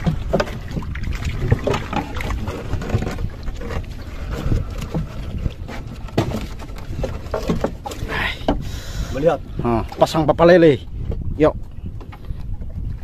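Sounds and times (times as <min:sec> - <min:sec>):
boat engine low rumble: 0:00.0 - 0:13.0.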